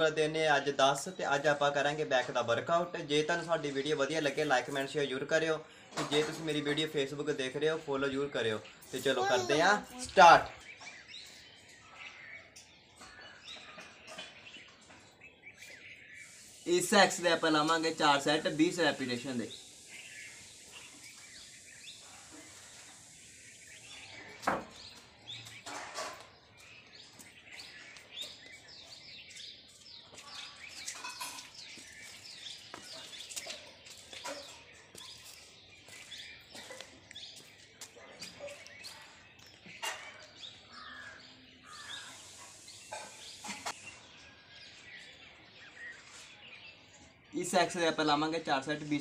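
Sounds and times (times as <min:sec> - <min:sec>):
faint birds chirping: 0:00.0 - 0:49.0
steady high hiss: 0:16.0 - 0:24.3, 0:41.6 - 0:43.9.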